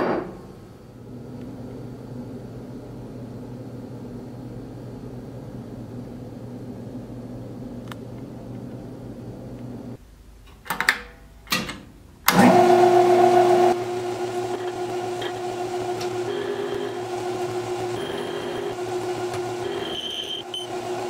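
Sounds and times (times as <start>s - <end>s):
lathe motor whine: 12.3s - 21.0s.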